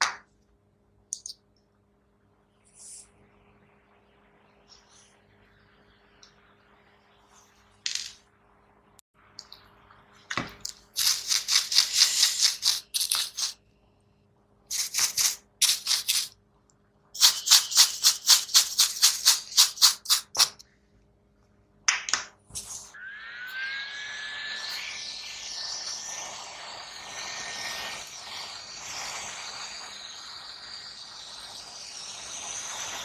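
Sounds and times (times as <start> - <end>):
brush scrubbing circuit board: 11.0 - 13.6, 17.2 - 20.4, 23.6 - 33.0.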